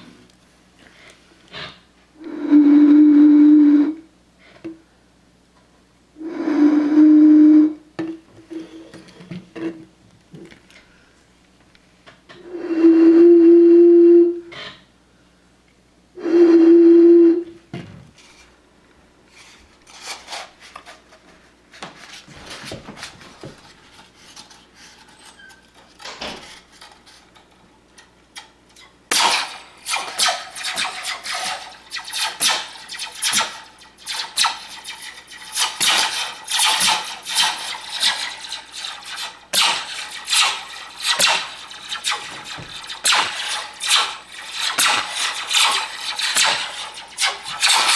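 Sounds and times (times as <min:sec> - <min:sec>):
hooting tones blown across bottle: 0:02.2 - 0:04.1, 0:06.2 - 0:07.9, 0:12.4 - 0:14.5, 0:16.2 - 0:17.6
metal slinky coils rattling: 0:23.8 - 0:47.9.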